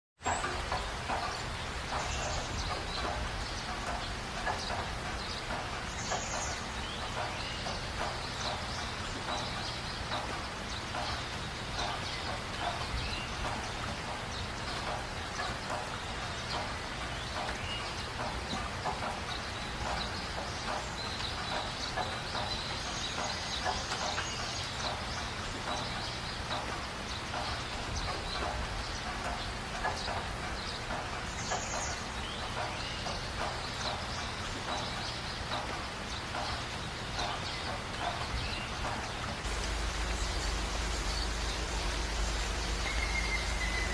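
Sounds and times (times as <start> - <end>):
birds chirping: 0.2 - 43.9
low steady hum: 38.6 - 43.9.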